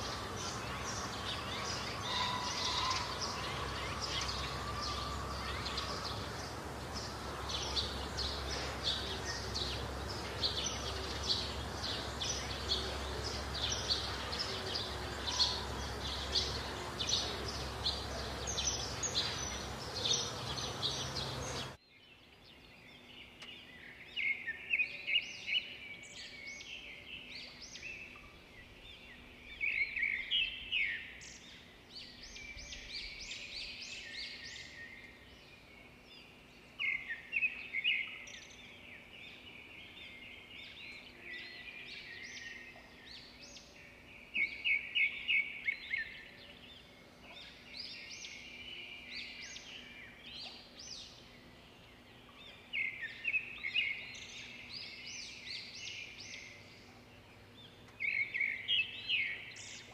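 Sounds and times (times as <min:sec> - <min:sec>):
short gliding bird calls: 0:00.0 - 0:21.8
birds chirping: 0:00.0 - 0:59.9
outdoor background noise: 0:00.0 - 0:59.9.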